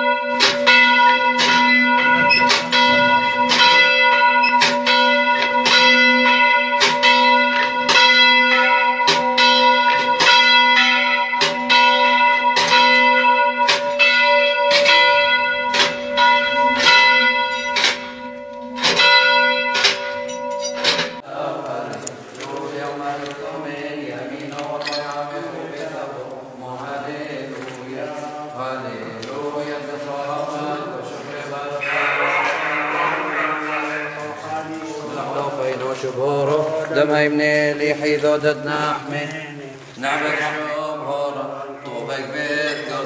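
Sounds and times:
church bell ringing: 0.0s - 21.2s, 29.4s - 39.2s, 40.0s - 43.0s.

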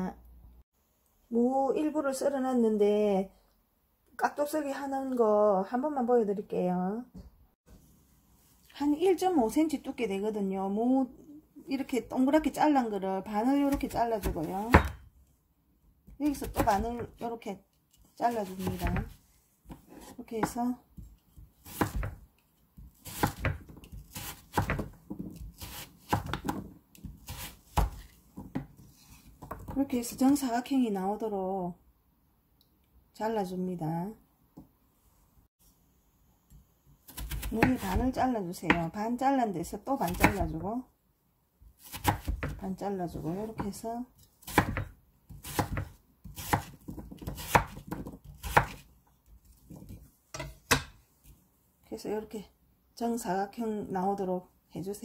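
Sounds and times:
knife chopping on wooden board: 13.7s - 15.0s, 18.4s - 22.2s, 22.8s - 28.8s, 37.1s - 38.8s, 41.8s - 42.6s, 44.4s - 48.9s, 49.7s - 51.0s.

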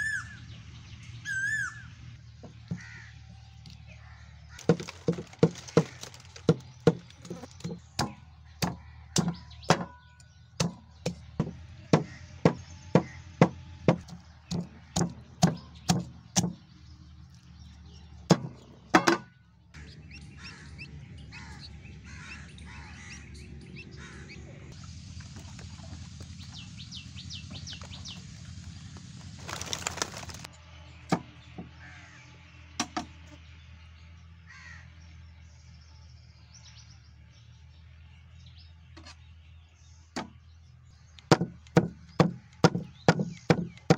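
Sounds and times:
cleaver chopping chicken on wood: 4.6s - 10.0s, 10.6s - 16.6s, 18.3s - 19.3s, 41.2s - 43.9s
chicks cheeping: 19.7s - 30.5s.

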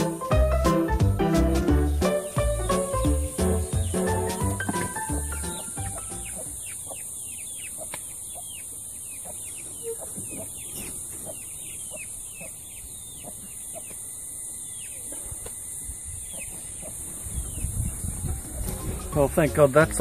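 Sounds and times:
chicks peeping: 0.0s - 20.0s
high insect drone: 13.5s - 17.8s.

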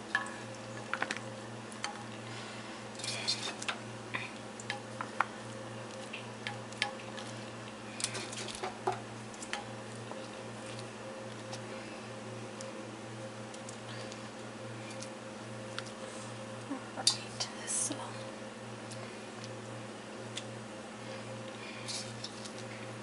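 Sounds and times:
tongs clicking and tapping: 4.6s - 5.3s, 8.9s - 9.7s.

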